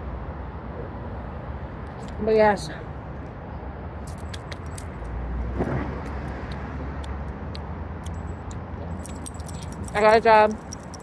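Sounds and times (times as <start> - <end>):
road traffic rumble: 0.0 - 11.0
beaded bracelets clicking and jingling: 4.0 - 5.2, 8.0 - 11.0.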